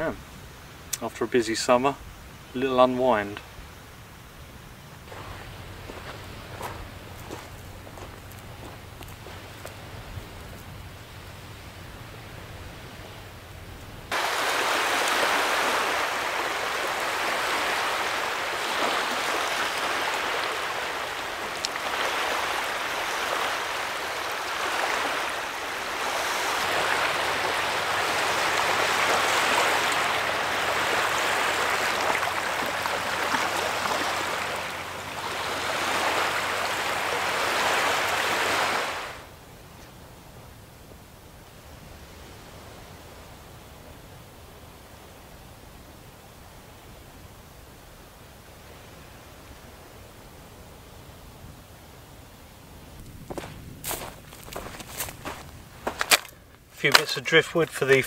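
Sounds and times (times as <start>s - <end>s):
small waves washing on shore: 2.3s - 39.4s, 52.5s - 58.0s.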